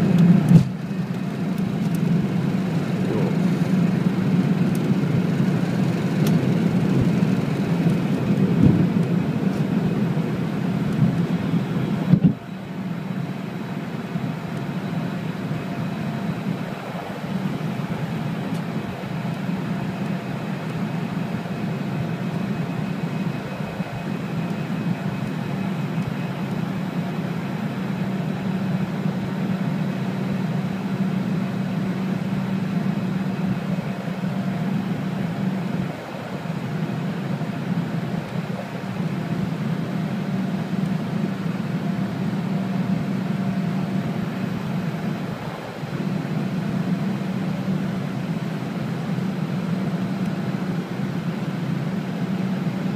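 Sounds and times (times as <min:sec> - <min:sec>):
loud rolling rumble: 0:00.0 - 0:13.1
airliner engines at takeoff: 0:00.0 - 0:52.9.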